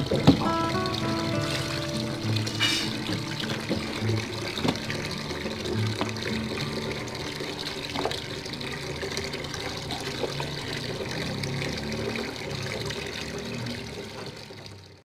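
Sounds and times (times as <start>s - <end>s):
potatoes splashing in water: 0.0s - 14.1s
tap water running into basin: 0.0s - 15.0s.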